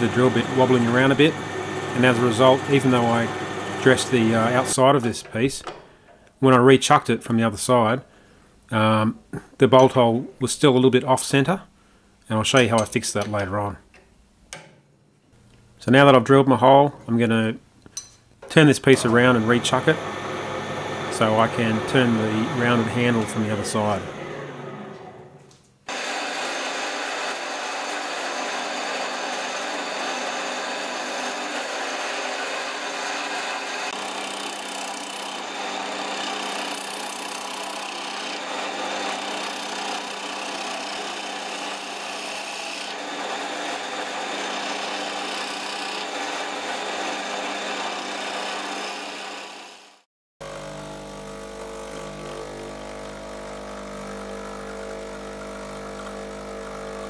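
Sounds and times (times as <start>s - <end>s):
espresso machine pump humming: 0.0s - 4.7s, 19.2s - 25.0s, 50.4s - 57.0s
wood lathe turning tool scraping: 0.0s - 5.4s, 18.8s - 50.8s.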